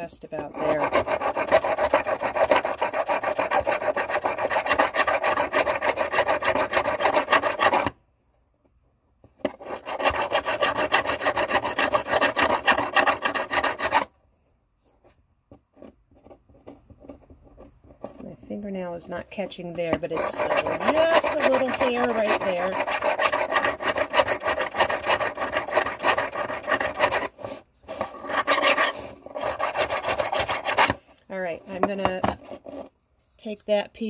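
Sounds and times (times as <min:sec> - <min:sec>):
hand file rasping on metal: 0:00.0 - 0:08.0, 0:09.4 - 0:14.1, 0:19.4 - 0:32.9.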